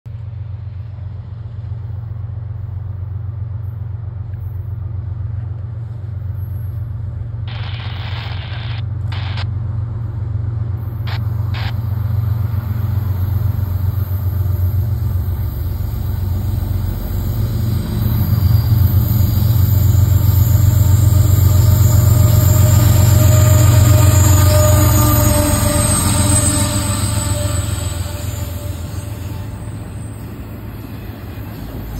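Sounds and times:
diesel locomotive engine rumble: 0.1 - 31.9
wheels whining on rail: 0.1 - 31.9
short bursts of noise: 7.5 - 9.5, 11.1 - 11.8.

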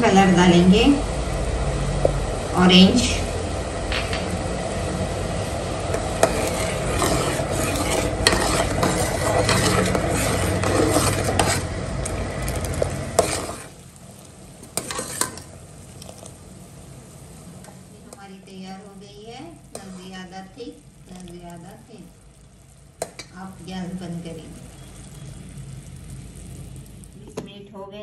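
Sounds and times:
syrup sizzling: 0.2 - 27.6
syrup bubbling: 4.5 - 27.4
metal spoon scraping pan: 5.9 - 13.7, 14.7 - 15.5, 19.7 - 20.2.

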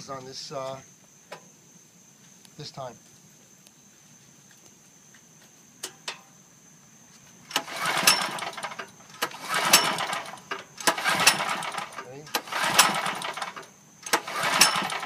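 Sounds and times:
generator pull-starter engine turning over: 7.5 - 15.0.

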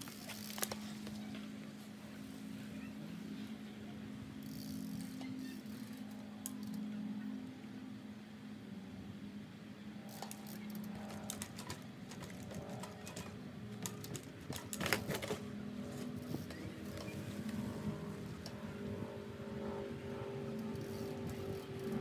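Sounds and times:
bike sharp clicks: 0.0 - 1.5, 10.1 - 17.7, 20.6 - 22.0.

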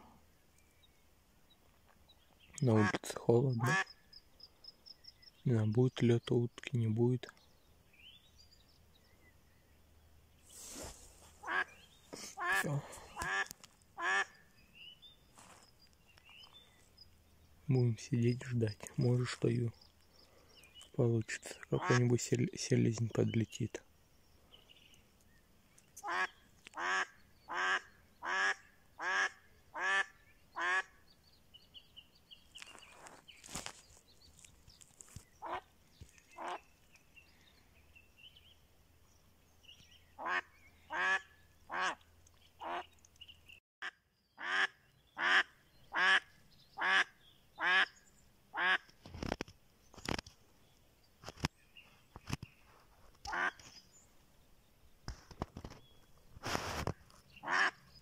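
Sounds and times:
duck quacking: 11.4 - 14.4, 26.0 - 30.9, 35.4 - 35.6, 36.4 - 36.6, 40.2 - 42.0, 44.4 - 47.9, 57.4 - 57.8.

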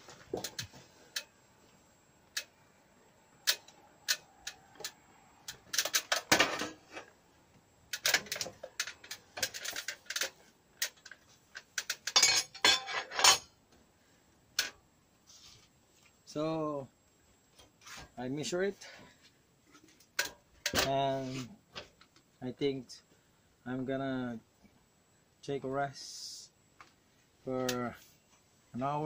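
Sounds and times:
aluminium stepladder rattling: 7.9 - 13.5.

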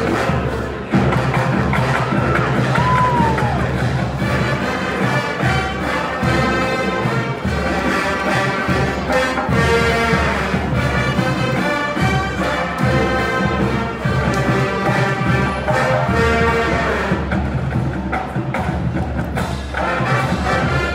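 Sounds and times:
marching drums: 0.0 - 20.9
brass playing a tune: 4.2 - 17.6, 19.7 - 20.9.

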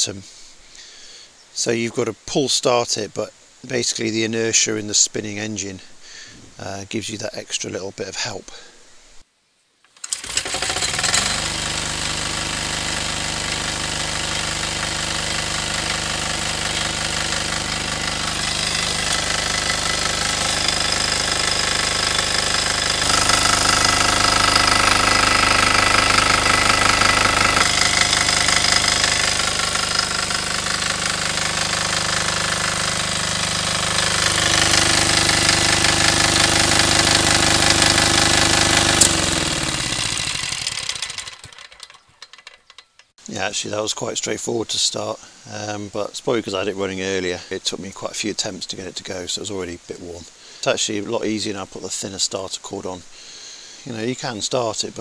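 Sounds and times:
diesel engine knocking: 13.0 - 41.7.

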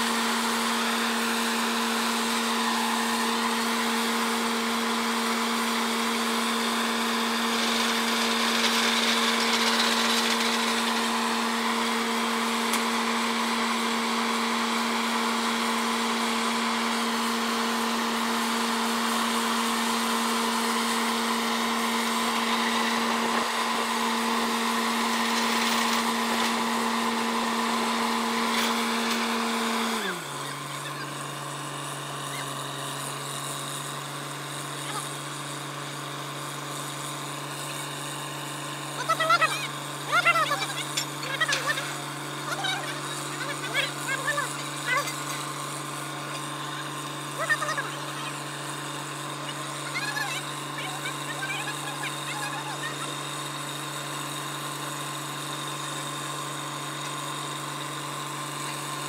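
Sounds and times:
engine and compressor hum: 0.0 - 59.0.

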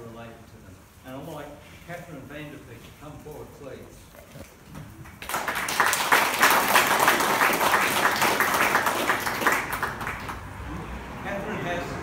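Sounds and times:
audience applauding: 5.0 - 10.6.

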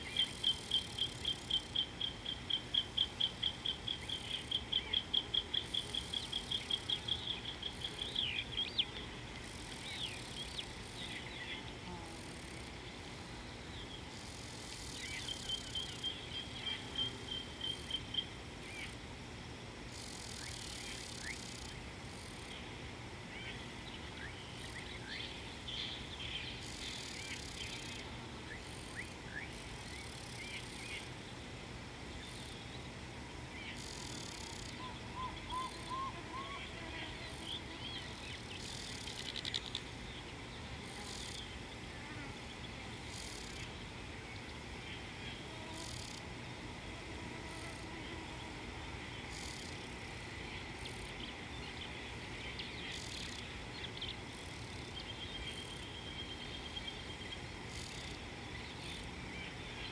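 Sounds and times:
insects droning: 0.0 - 59.9
bird chirps: 34.7 - 36.7.

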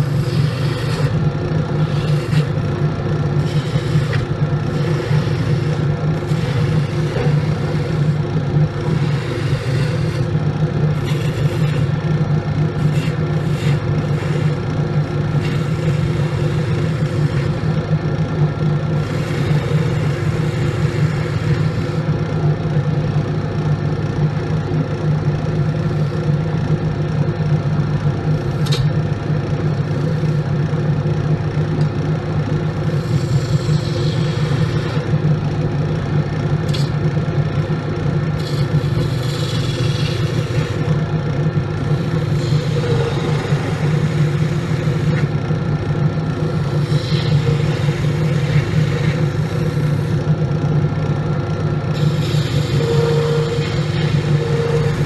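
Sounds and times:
turning tool scraping wood: 0.0 - 2.8, 3.4 - 8.2, 8.8 - 10.3, 10.9 - 12.1, 12.7 - 17.8, 19.0 - 22.0, 32.9 - 35.1, 38.4 - 41.0
wood lathe humming: 0.0 - 22.9, 31.8 - 55.0
sharp click: 28.6 - 28.9, 36.7 - 37.0.

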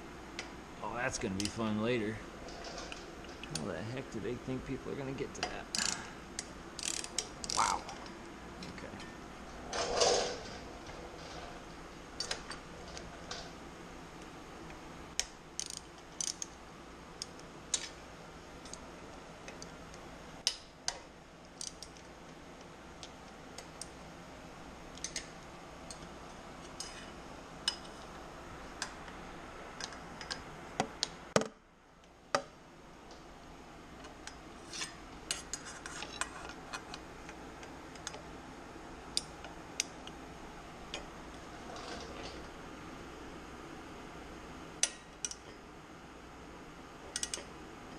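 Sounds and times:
steady background hum: 0.0 - 47.9
ratchet wrench clicking: 5.7 - 7.6, 15.2 - 16.5.

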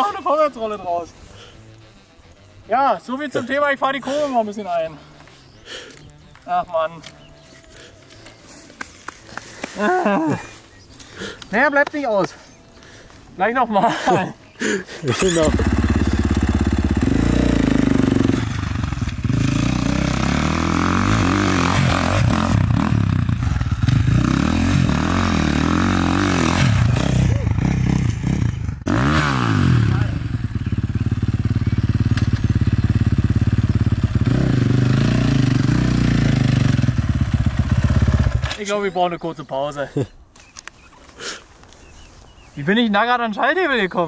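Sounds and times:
motocross bike engine revving: 15.1 - 38.6.

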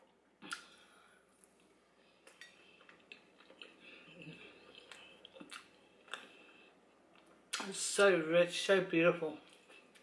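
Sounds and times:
faint chewing of soft food: 0.0 - 7.7, 9.4 - 10.0
wet mouth smacks and clicks: 0.5 - 0.7, 4.8 - 6.2.

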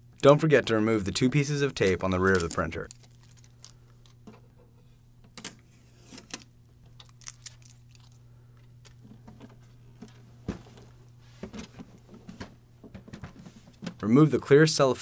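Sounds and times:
steady low hum: 0.0 - 15.0
packing tape peeling: 1.8 - 4.2, 5.4 - 8.2.

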